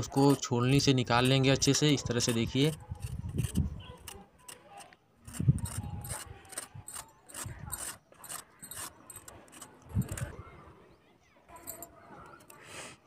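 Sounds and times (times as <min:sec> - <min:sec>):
peeler scraping carrot skin: 0:01.1 - 0:10.4.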